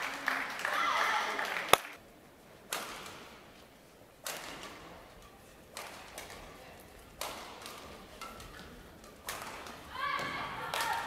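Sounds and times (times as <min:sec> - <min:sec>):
rackets hitting shuttlecock: 0:02.7 - 0:03.4, 0:04.2 - 0:11.0.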